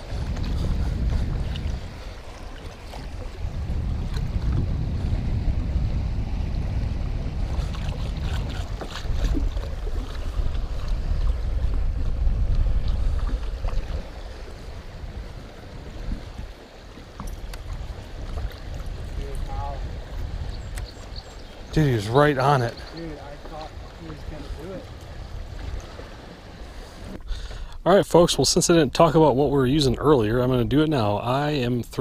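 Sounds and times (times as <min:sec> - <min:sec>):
water lapping against boat: 0:00.0 - 0:32.0
wind buffeting microphone: 0:00.0 - 0:32.0
light clicks and splashes: 0:07.5 - 0:11.8, 0:12.5 - 0:14.2, 0:17.0 - 0:19.7, 0:20.6 - 0:26.2.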